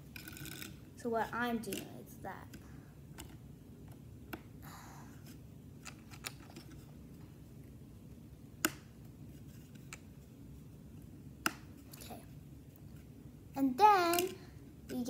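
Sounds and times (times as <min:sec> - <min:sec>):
plastic toy bricks clicking together: 0:14.1 - 0:15.0.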